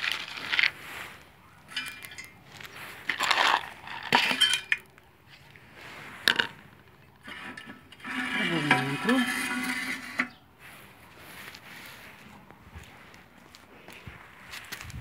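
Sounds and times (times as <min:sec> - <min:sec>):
clinks and rattles of handling: 0:01.7 - 0:05.0.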